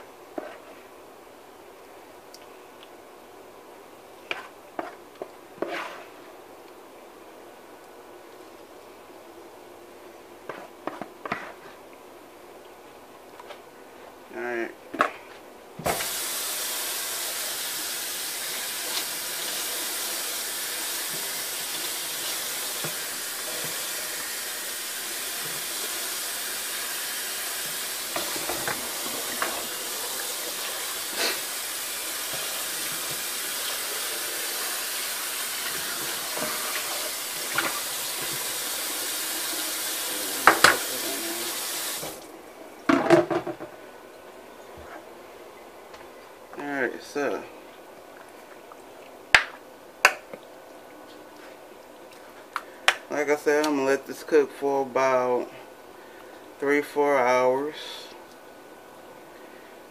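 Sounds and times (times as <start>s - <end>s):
water running from tap: 15.9s - 42.3s.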